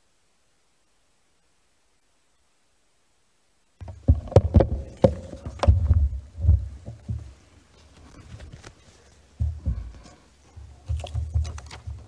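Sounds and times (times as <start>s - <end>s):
microphone handling thumps: 3.8s - 12.0s.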